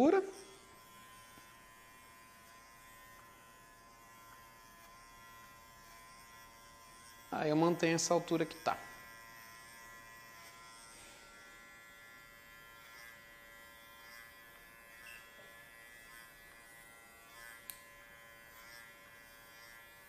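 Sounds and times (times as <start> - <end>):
electric clipper motor buzz: 0.0 - 20.0.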